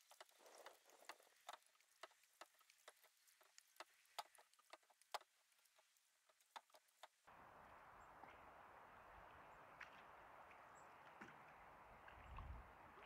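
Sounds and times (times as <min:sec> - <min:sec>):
water ticking against hull: 0:00.0 - 0:08.5
paddle swishing in water: 0:08.2 - 0:13.0.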